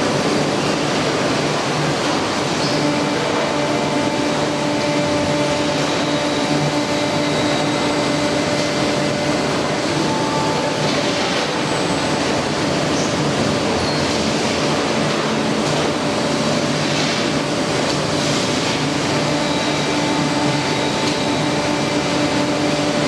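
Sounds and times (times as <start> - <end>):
machinery and conveyors rushing: 0.0 - 23.0
motor whine: 2.8 - 11.2.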